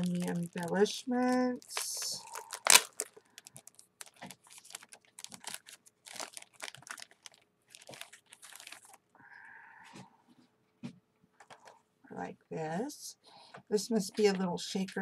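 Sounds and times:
plastic bag crinkling: 0:00.0 - 0:09.1, 0:11.4 - 0:11.8.

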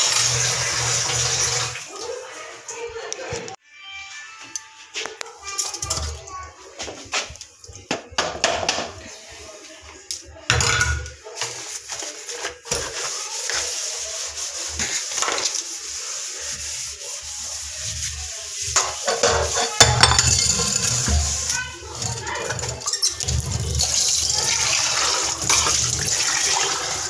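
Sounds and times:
hand scrubbing metal sink: 0:11.3 - 0:27.0.

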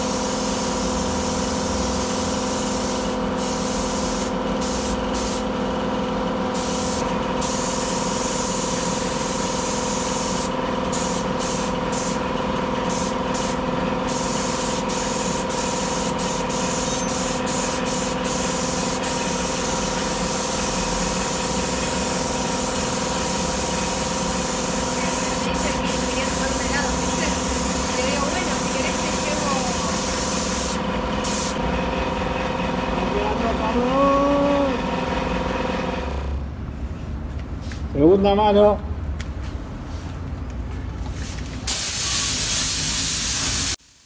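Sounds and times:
paint spray gun hissing: 0:00.0 - 0:05.6, 0:06.4 - 0:31.6, 0:41.7 - 0:44.0.

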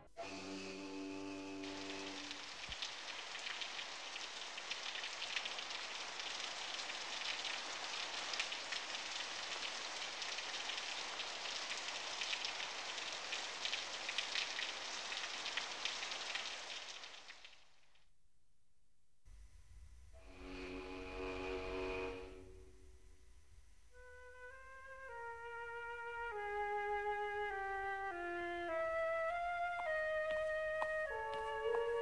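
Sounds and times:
steady rain: 0:00.2 - 0:17.8, 0:24.0 - 0:32.0.

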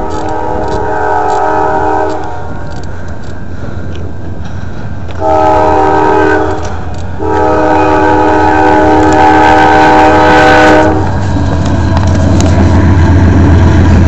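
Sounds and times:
locomotive air horn blasts: 0:00.0 - 0:02.5, 0:05.2 - 0:11.2.

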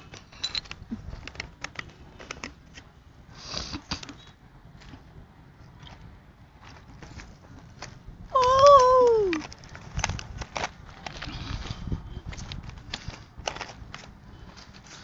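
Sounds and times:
wind rumbling on microphone: 0:04.4 - 0:15.0.

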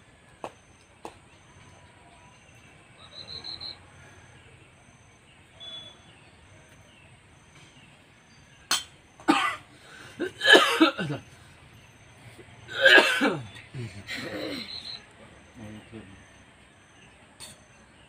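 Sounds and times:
faint insect chirping: 0:00.0 - 0:18.0
bird high chirps: 0:00.4 - 0:09.2, 0:13.4 - 0:18.0
person coughing: 0:08.7 - 0:11.2, 0:12.7 - 0:13.5, 0:14.1 - 0:14.7.

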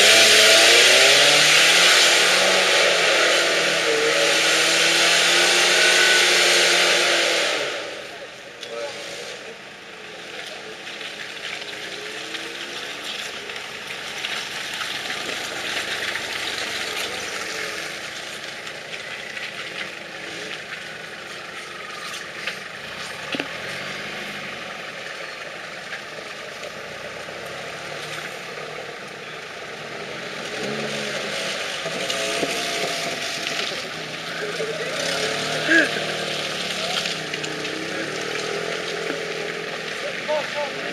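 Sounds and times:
off-road engines revving: 0:00.0 - 0:40.9.

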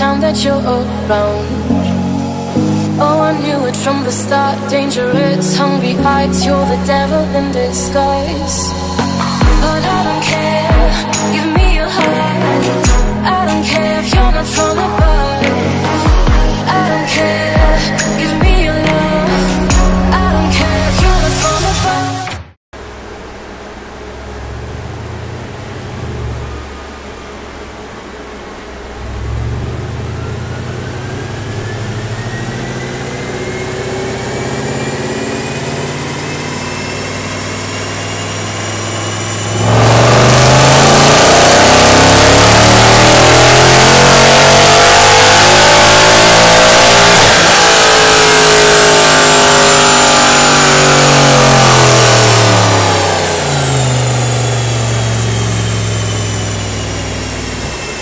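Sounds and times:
dyno rollers winding down: 0:00.0 - 0:22.2, 0:22.8 - 0:58.0
car engine revving on dyno: 0:22.8 - 0:58.0.

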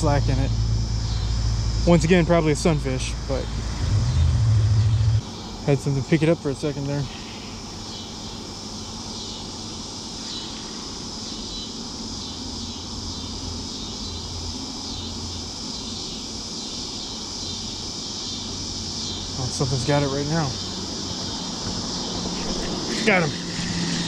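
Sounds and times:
faint low rumble: 0:00.0 - 0:05.2
insects shrilling: 0:00.0 - 0:24.0.

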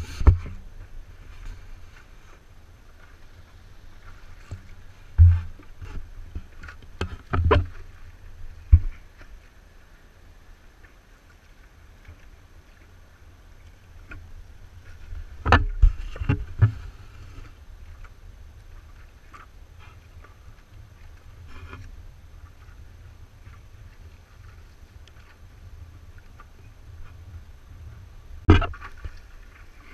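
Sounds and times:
paddle strokes in water: 0:00.0 - 0:29.9
water splashing: 0:28.3 - 0:29.9
knocks on paddle shaft: 0:28.5 - 0:28.9.

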